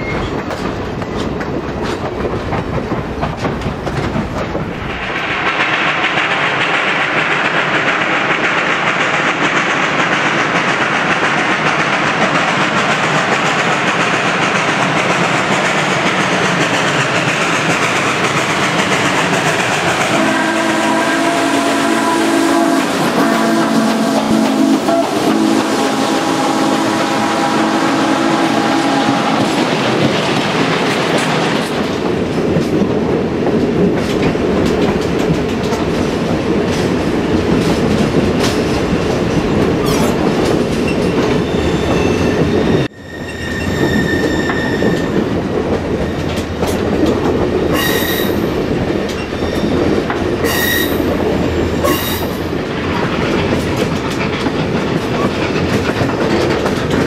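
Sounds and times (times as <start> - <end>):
train cars rumbling on rails: 0.0 - 57.0
steam locomotive whistle: 20.0 - 29.6, 41.4 - 45.2, 47.7 - 48.5, 50.4 - 51.1, 51.8 - 52.4
high wheel squeals: 40.8 - 45.2.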